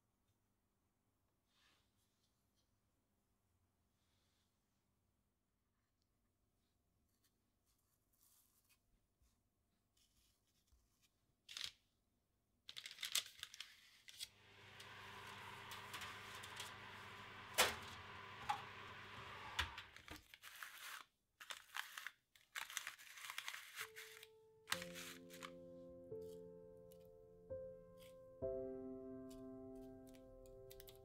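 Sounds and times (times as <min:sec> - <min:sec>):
baking paper crinkling: 0:09.9 - 0:11.8, 0:12.7 - 0:26.4
electric oven humming: 0:14.4 - 0:20.0.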